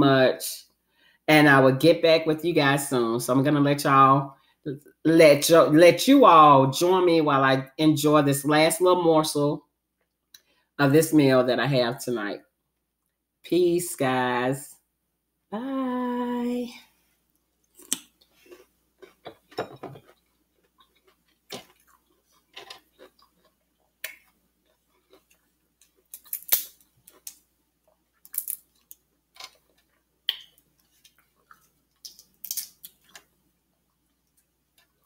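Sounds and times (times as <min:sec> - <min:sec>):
shrimp shell peeling crackles: 0:20.6 - 0:27.4, 0:28.2 - 0:33.3.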